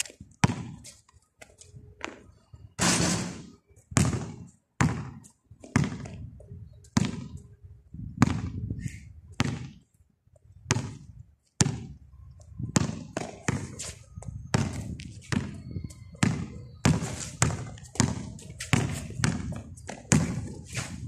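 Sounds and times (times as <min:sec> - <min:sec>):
basketball bouncing on concrete: 0:00.0 - 0:00.8, 0:02.8 - 0:06.3, 0:07.0 - 0:07.4, 0:08.2 - 0:08.6, 0:09.3 - 0:09.8, 0:10.7 - 0:12.0, 0:12.6 - 0:20.7.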